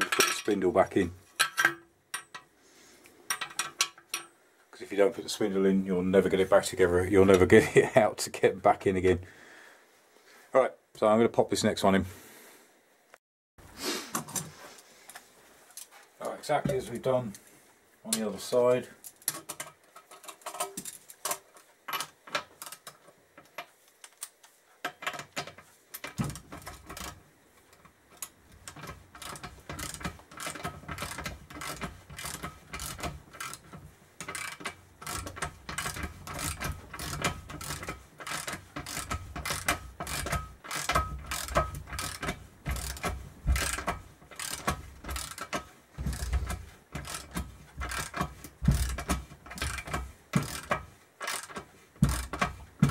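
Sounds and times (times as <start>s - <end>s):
ratchet clicking: 28.2s - 52.9s.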